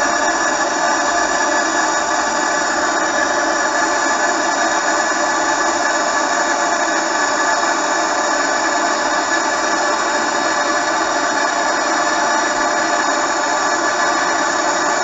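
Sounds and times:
gas torch hissing: 0.0s - 15.0s.

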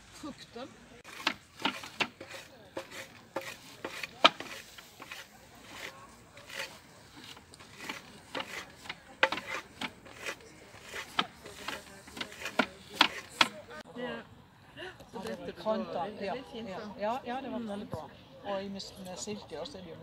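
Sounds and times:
dried stalks crunching: 1.0s - 13.6s
sharp wooden knocks: 1.1s - 5.9s, 6.5s - 13.6s.

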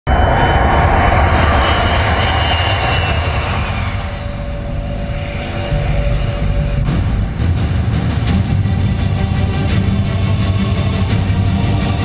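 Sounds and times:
jet airliner engine whine: 0.1s - 7.8s.

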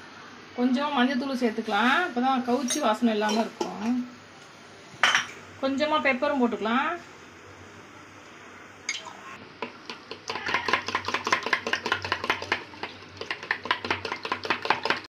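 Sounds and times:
spoon beating eggs in plastic tub: 9.6s - 15.0s.

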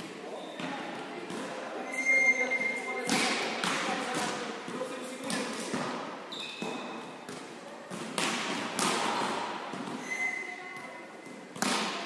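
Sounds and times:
volleyballs thudding in a hall: 0.0s - 12.0s
high squeak: 1.8s - 3.0s, 6.3s - 6.8s, 10.0s - 10.6s.

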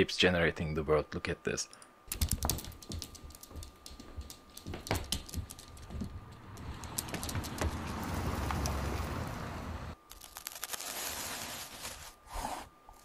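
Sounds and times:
outdoor ambience hiss: 0.0s - 13.0s
dog claws clicking on hardwood: 2.1s - 8.0s.

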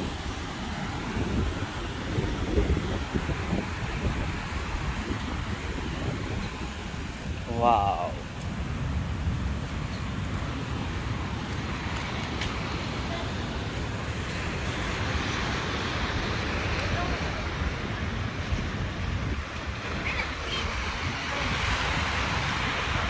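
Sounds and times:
small waves breaking: 0.0s - 23.0s
wind buffeting microphone: 0.0s - 23.0s.

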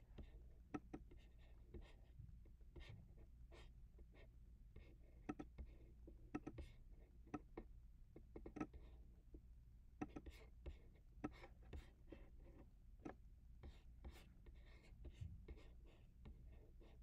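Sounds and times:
computer mouse clicks: 5.3s - 5.6s, 6.3s - 6.6s, 8.4s - 8.7s, 10.0s - 10.3s.

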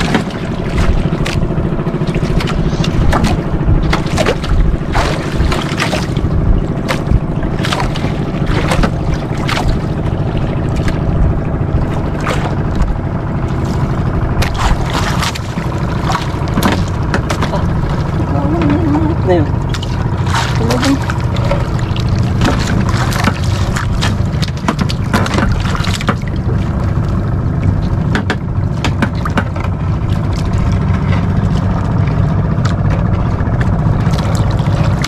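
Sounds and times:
boat engine running: 0.0s - 35.0s
water slapping against hull: 0.0s - 35.0s.

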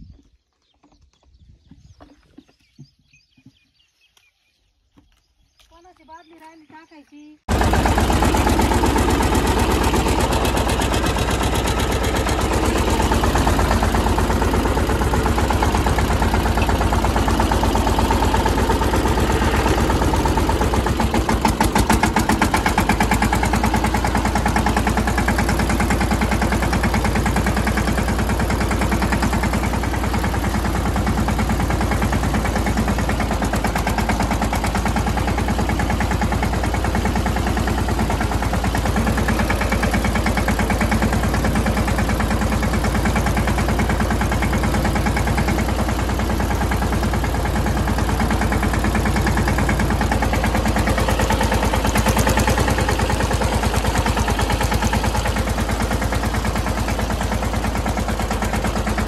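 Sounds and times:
tractor diesel engine running: 6.0s - 59.0s.

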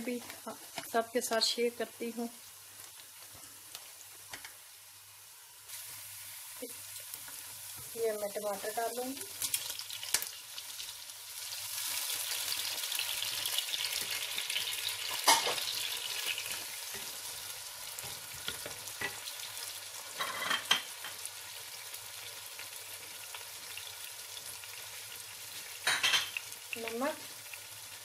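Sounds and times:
vegetables sizzling in hot oil: 0.0s - 28.0s.

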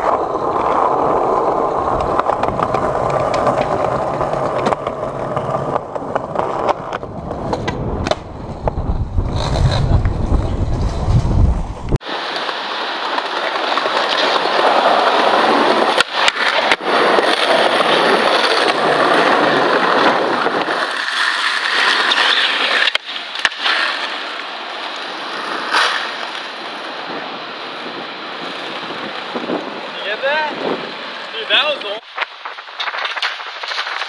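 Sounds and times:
skateboard clacks: 0.0s - 34.0s
skateboard wheels rolling on pavement: 0.0s - 34.0s.

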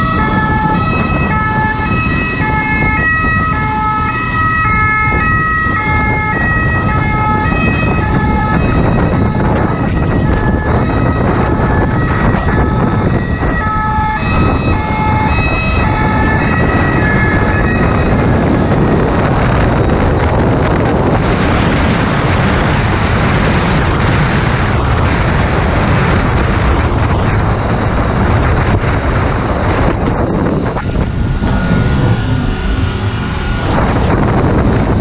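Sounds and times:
two-tone siren: 0.0s - 35.0s
wind rush on microphone: 0.0s - 35.0s
motorcycle engine running: 30.3s - 35.0s.

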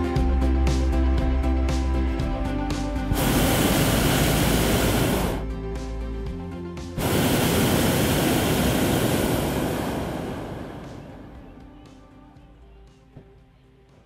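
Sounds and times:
propane burner blasts: 3.0s - 5.6s, 7.0s - 11.9s.

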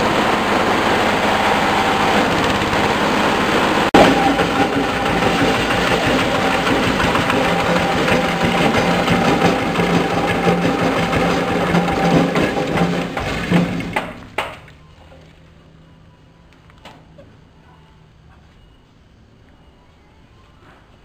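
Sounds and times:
diesel engine running: 0.0s - 14.4s
hammer mill whirring: 0.0s - 14.6s.

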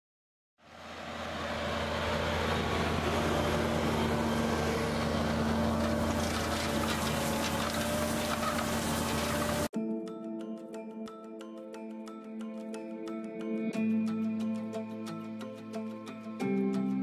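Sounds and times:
tractor engine running under load: 0.7s - 9.7s.

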